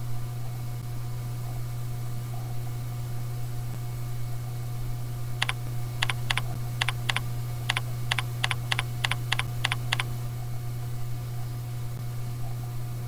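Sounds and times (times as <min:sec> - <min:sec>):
steady low hum: 0:00.0 - 0:13.0
keyboard typing clicks: 0:05.4 - 0:10.1.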